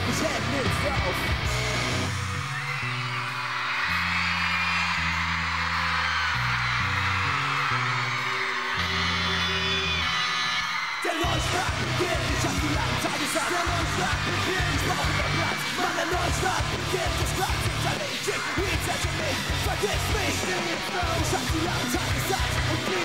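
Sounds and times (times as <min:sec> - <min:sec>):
live rock band playing: 0:00.0 - 0:02.7, 0:11.2 - 0:23.0
drums with driving beat: 0:00.0 - 0:02.8, 0:11.2 - 0:23.0
crowd screaming: 0:00.0 - 0:23.0.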